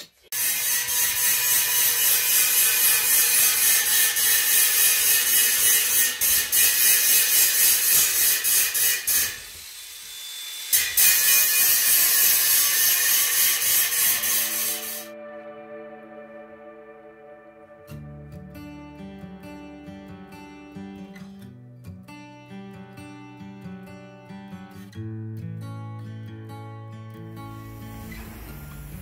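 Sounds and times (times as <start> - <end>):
angle grinder cutting metal: 0.3 - 15.2.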